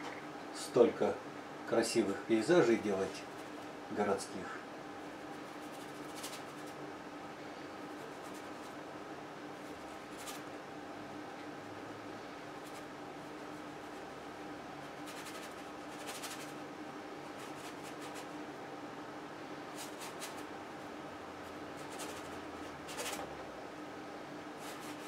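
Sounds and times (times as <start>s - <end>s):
faint hum: 0.0s - 25.0s
paintbrush scratching on canvas: 5.3s - 6.8s, 14.8s - 16.6s, 17.2s - 18.4s, 21.4s - 23.2s, 24.6s - 25.0s.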